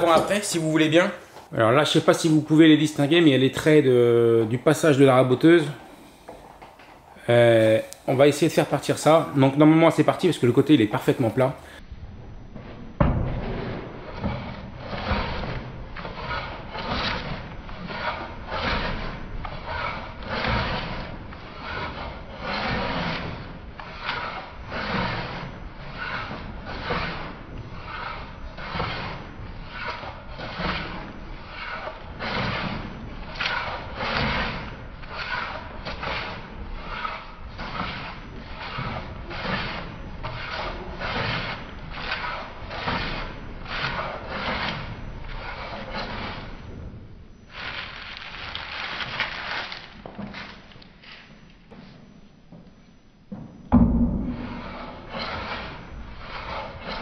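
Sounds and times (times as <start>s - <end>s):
hand plane scraping wood: 13.5s - 46.6s, 54.3s - 57.0s.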